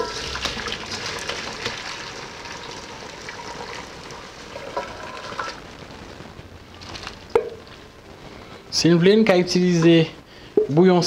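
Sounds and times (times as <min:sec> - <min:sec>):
liquid pouring into metal bowl: 0:00.0 - 0:05.6.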